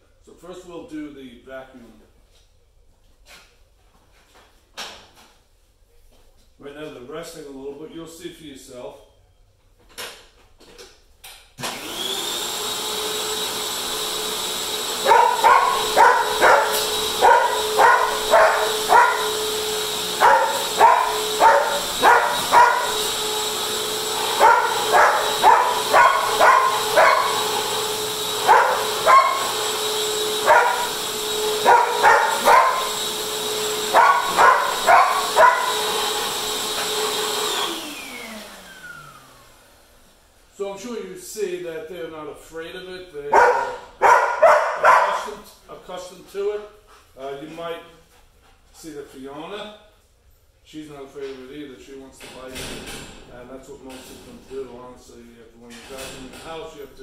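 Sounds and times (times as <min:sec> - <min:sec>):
upright vacuum cleaner whine: 0:11.6 - 0:40.7
dog barking: 0:15.0 - 0:23.1, 0:24.1 - 0:27.8, 0:28.4 - 0:29.6, 0:30.4 - 0:33.0, 0:33.8 - 0:36.2, 0:43.3 - 0:45.4.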